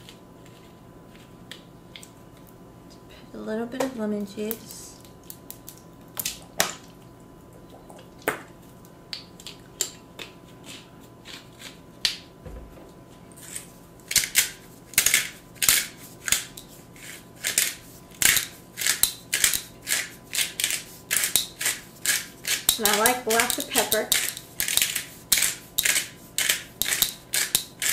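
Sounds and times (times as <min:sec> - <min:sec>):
pepper grinder clicking: 0:14.1 - 0:16.6, 0:17.4 - 0:27.9.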